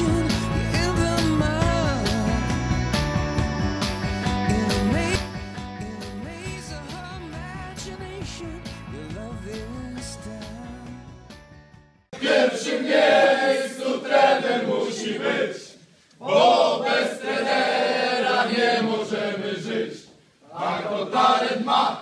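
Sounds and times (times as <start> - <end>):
men singing in unison: 0.0 - 2.6
recorded song: 0.0 - 16.2.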